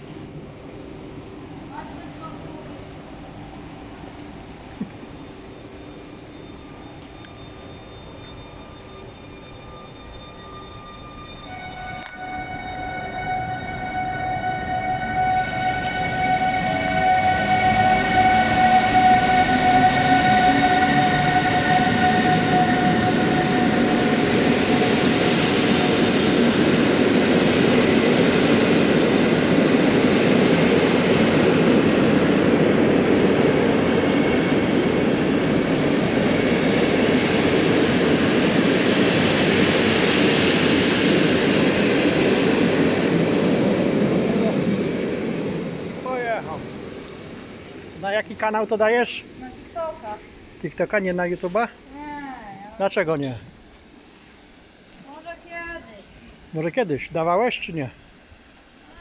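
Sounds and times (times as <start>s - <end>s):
locomotive high whine: 0.0s - 59.0s
train coaches rumbling and rattling: 6.6s - 51.9s.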